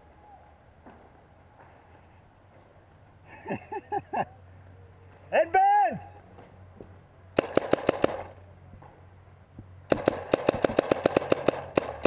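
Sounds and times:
paintball marker firing: 0:07.4 - 0:08.4, 0:09.9 - 0:12.0.

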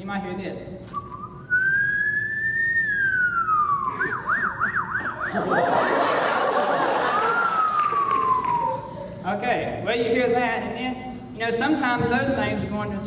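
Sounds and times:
vocal imitation of siren: 0:03.2 - 0:05.8, 0:07.0 - 0:09.0.

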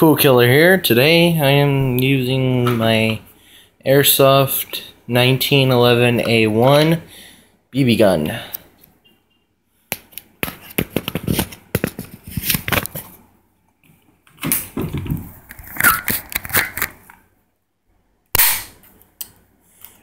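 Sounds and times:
clicks and rustles of handling: 0:09.9 - 0:17.2.

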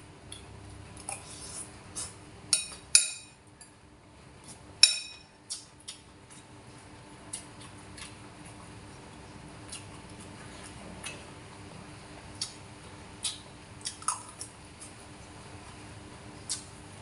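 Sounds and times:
faint steady hum: 0:00.0 - 0:17.0
spoon clinking on ceramic bowl: 0:04.8 - 0:05.3.

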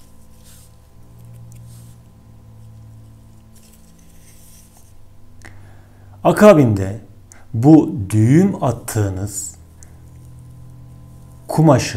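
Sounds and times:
gloved hands rustling cloth: 0:00.0 - 0:05.2
steady low hum: 0:00.0 - 0:11.9.

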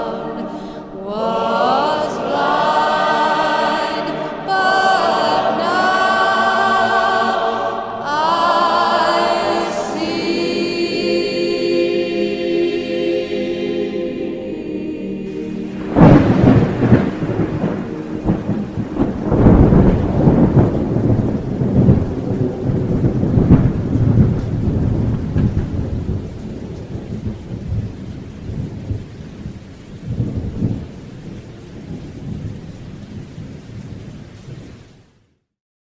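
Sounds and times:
rain: 0:00.0 - 0:35.5
rolling thunder: 0:15.3 - 0:34.7.

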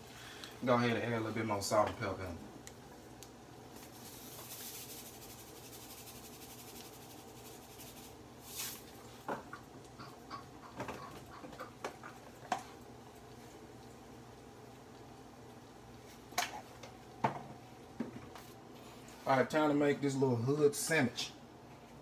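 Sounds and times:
seasoning shakers rattling: 0:03.8 - 0:09.0.

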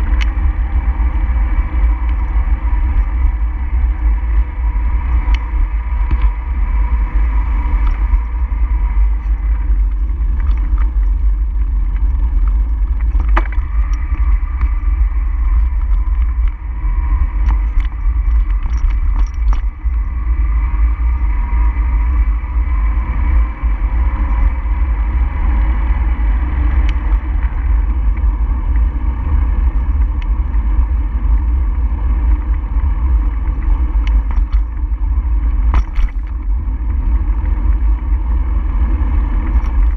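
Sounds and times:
road noise: 0:00.0 - 0:39.9
wind rumble on microphone: 0:00.0 - 0:39.9
faint clicks and rattles: 0:09.0 - 0:20.3, 0:26.8 - 0:38.2, 0:39.2 - 0:39.9.

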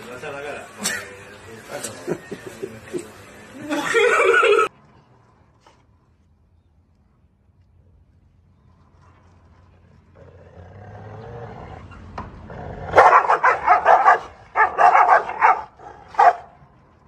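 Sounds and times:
dogs barking: 0:12.9 - 0:16.6.

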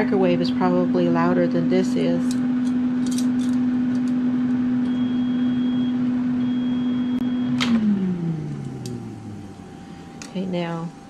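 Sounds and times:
air fryer fan humming: 0:00.0 - 0:11.0
faint high beeps: 0:04.9 - 0:07.5.

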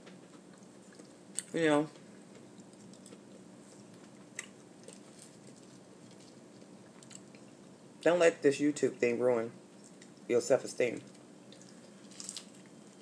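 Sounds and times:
faint steady hum: 0:00.0 - 0:13.0
person chewing food: 0:00.4 - 0:01.6, 0:02.2 - 0:07.8, 0:09.8 - 0:10.3, 0:11.1 - 0:13.0.

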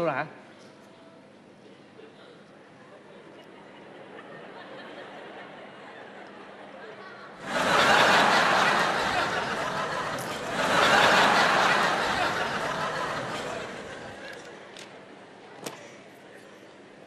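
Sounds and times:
audience laughing: 0:03.1 - 0:14.7.

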